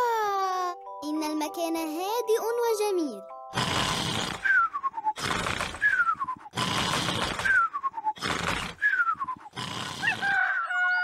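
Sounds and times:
cartoon snoring snort: 0:03.5 - 0:10.4.

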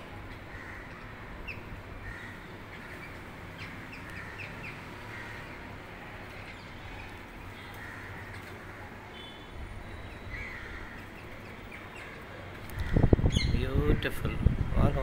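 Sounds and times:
parakeets chirping and squawking: 0:00.2 - 0:08.8.

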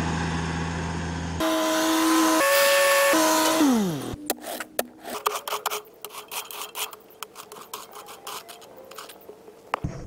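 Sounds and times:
shovel scraping gravel and soil: 0:03.2 - 0:09.4.

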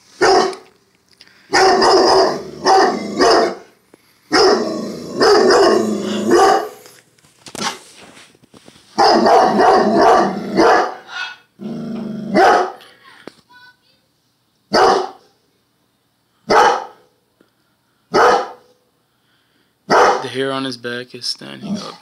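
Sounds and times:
dog barking: 0:00.2 - 0:00.6, 0:01.5 - 0:03.7, 0:04.3 - 0:06.8, 0:09.0 - 0:11.4, 0:12.3 - 0:12.8, 0:14.7 - 0:15.3, 0:16.5 - 0:17.2, 0:18.1 - 0:18.8, 0:19.9 - 0:20.3.

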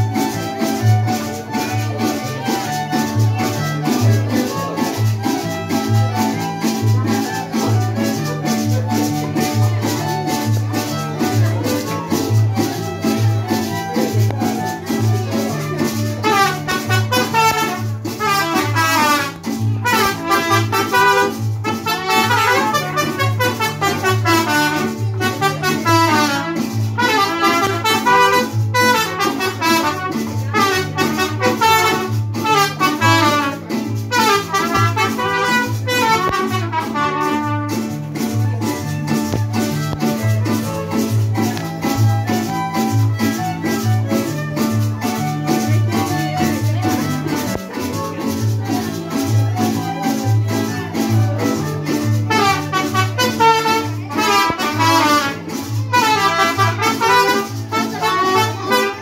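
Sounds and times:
latin dance band: 0:00.0 - 0:59.0
trumpets playing melody: 0:15.2 - 0:38.0, 0:52.1 - 0:59.0.

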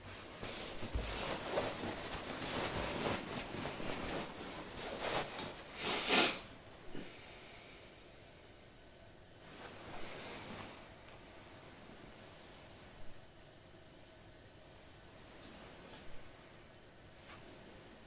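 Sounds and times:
fabric rustling: 0:00.0 - 0:05.8, 0:09.4 - 0:10.9
cloth swish: 0:00.0 - 0:06.4.

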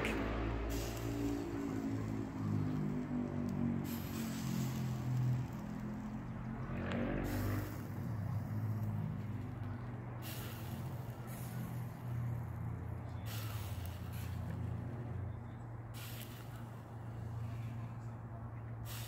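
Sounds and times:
low engine hum: 0:00.0 - 0:19.0
short hiss: 0:13.2 - 0:14.8, 0:16.0 - 0:16.8.

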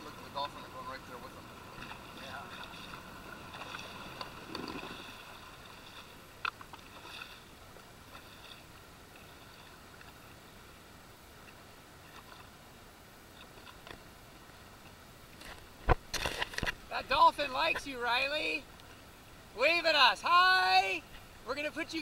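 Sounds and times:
watercraft engine idling: 0:00.0 - 0:15.8.

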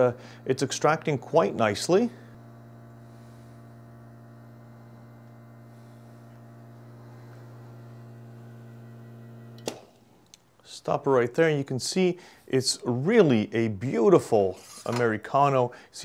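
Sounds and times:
espresso machine pump humming: 0:00.0 - 0:09.8.

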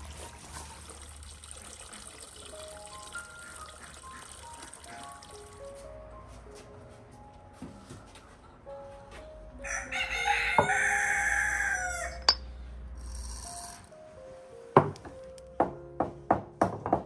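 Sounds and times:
soft background music: 0:01.8 - 0:17.0
rooster crowing: 0:09.6 - 0:12.3.

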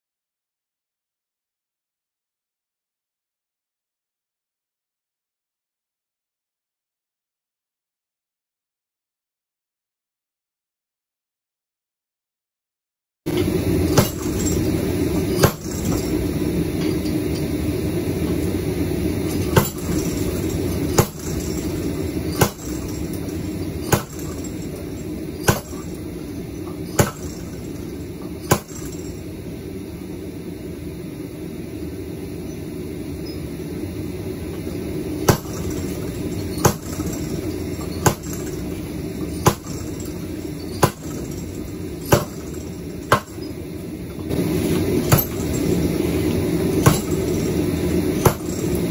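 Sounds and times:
power hammer striking metal: 0:13.3 - 0:30.0, 0:34.4 - 0:48.9.

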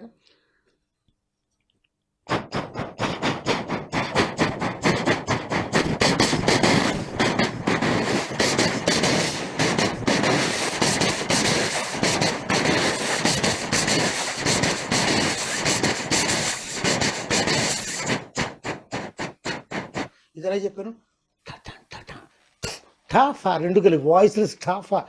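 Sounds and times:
vocal train clatter mimicry: 0:02.3 - 0:20.2, 0:21.5 - 0:22.9.

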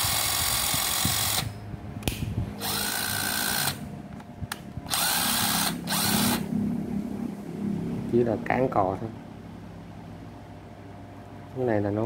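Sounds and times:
impact driver motor whining: 0:00.0 - 0:01.6, 0:02.6 - 0:03.8, 0:04.9 - 0:06.4.

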